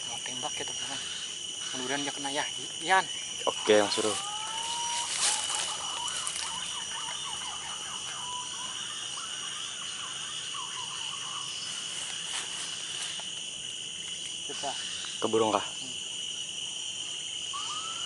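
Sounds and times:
forest insects droning: 0.0 - 18.0
falling bird whistles: 17.5 - 18.0.

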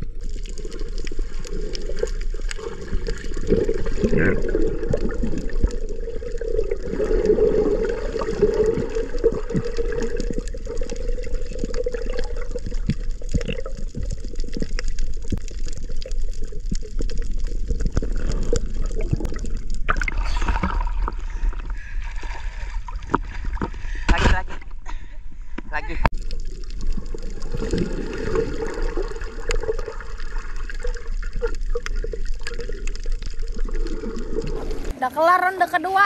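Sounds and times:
muffled underwater gurgling: 0.0 - 21.9.

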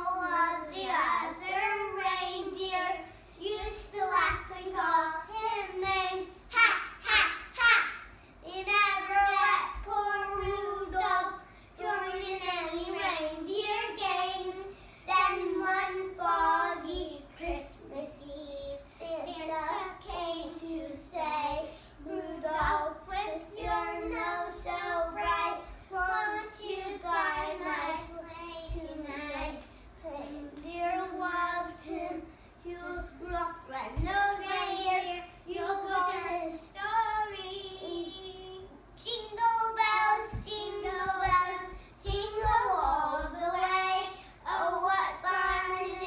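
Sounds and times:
young children singing a carol: 0.0 - 46.0.

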